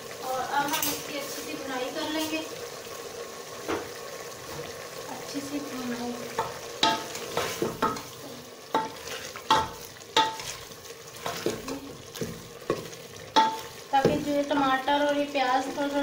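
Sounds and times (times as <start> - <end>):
meat sizzling in oil: 0.0 - 16.0
ladle knocking against metal pot: 6.4 - 8.1, 8.7 - 10.6, 11.3 - 14.3.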